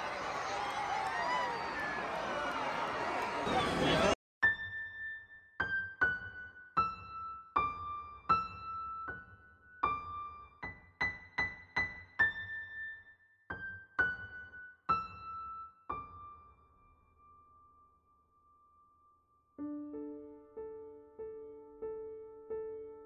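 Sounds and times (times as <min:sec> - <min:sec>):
slow electric piano melody: 0:19.6 - 0:23.0.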